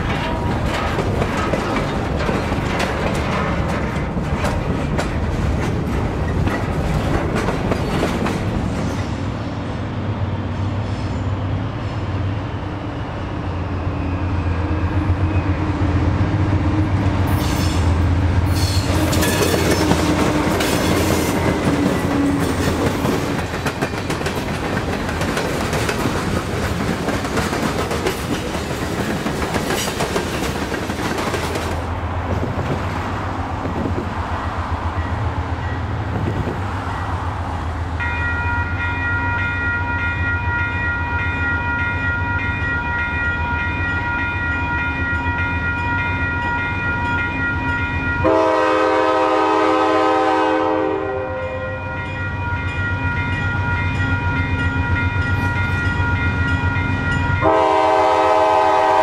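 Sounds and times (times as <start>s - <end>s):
train wheels clattering over rail joints: 0.0s - 9.0s, 18.6s - 32.8s.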